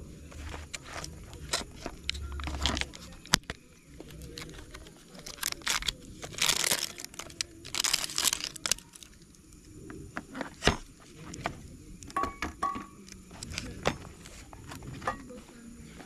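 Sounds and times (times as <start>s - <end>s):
crinkling and tearing rustles: 0.3s - 9.3s.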